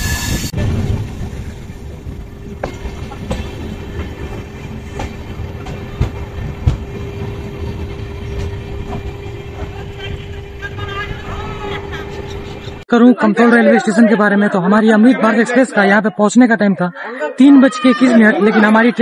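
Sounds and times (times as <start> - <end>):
train coach rumble and hum: 0.0 - 12.9.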